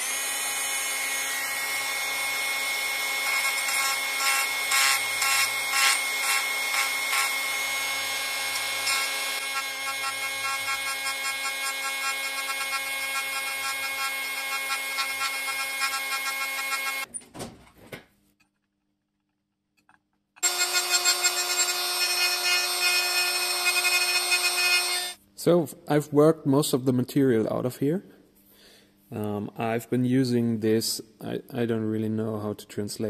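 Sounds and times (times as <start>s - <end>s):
rotary tool grinding metal: 0.0s - 17.1s, 20.4s - 25.2s.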